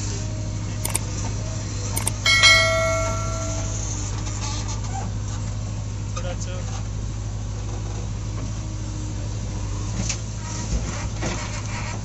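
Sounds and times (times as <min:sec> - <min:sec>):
light clicks: 0:02.0 - 0:02.2
sharp metallic clank: 0:02.0 - 0:04.0.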